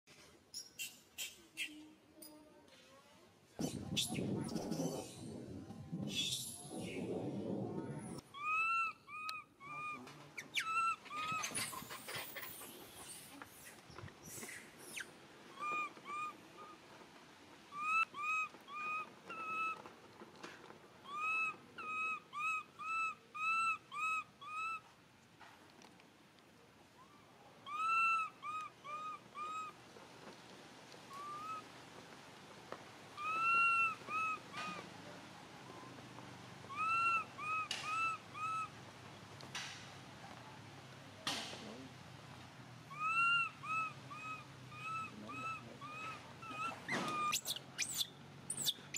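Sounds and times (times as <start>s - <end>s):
infant monkey coo calls: 8.3s - 16.8s, 17.7s - 19.8s, 21.0s - 24.9s, 27.0s - 29.8s, 31.1s - 31.7s, 33.2s - 34.9s, 36.7s - 38.8s, 42.9s - 48.9s.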